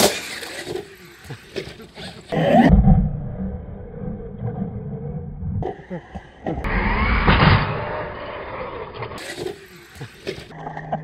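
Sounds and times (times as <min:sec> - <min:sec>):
toy truck crash: 0:00.0 - 0:02.3, 0:06.7 - 0:10.5.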